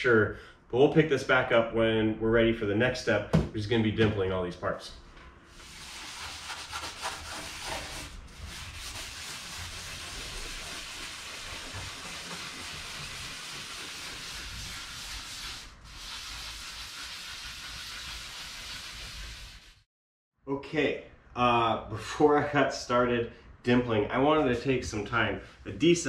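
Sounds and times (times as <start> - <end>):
abrasive scrubbing on metal: 5.6 - 19.7.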